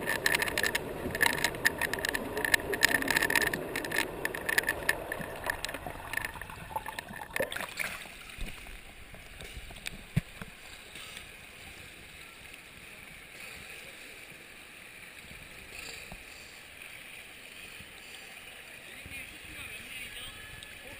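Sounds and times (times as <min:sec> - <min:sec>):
water lapping: 0:00.0 - 0:12.2
hollow indoor pool noise: 0:00.0 - 0:20.9
pool water splashing: 0:00.0 - 0:20.9.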